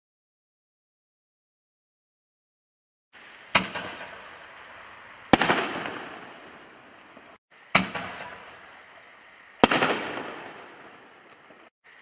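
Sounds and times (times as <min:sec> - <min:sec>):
firework crackle and echo: 0:03.2 - 0:12.0
loud firework bangs: 0:03.5 - 0:08.9, 0:09.6 - 0:11.7.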